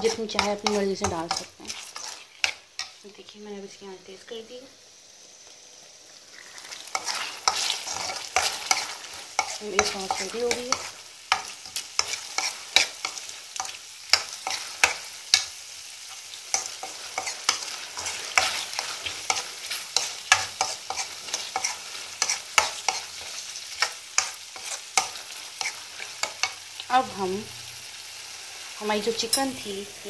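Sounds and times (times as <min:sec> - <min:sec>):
spoon scraping metal pan: 0:00.0 - 0:03.0, 0:06.4 - 0:15.5, 0:16.1 - 0:26.6
sauce sizzling: 0:00.0 - 0:30.0.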